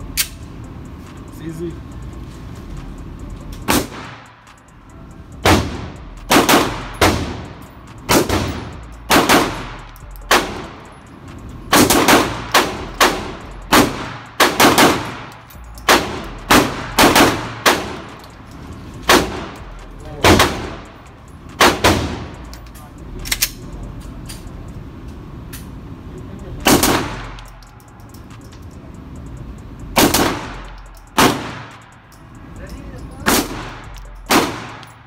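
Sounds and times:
handgun shots echoing: 0:33.2 - 0:35.0.

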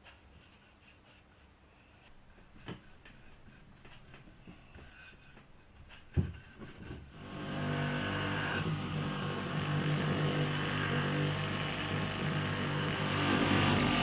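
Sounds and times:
polishing wheel against wood: 0:00.0 - 0:14.0
rotary tool motor hum: 0:07.2 - 0:14.0.

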